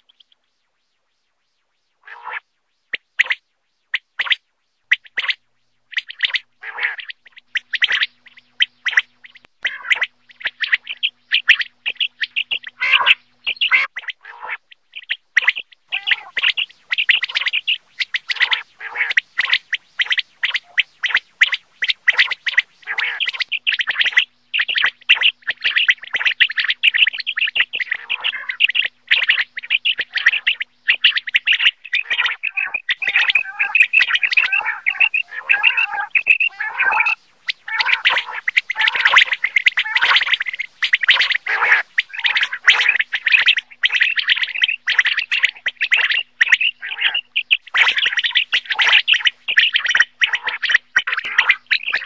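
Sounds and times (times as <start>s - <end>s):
quail chirping: 2.1s - 52.0s.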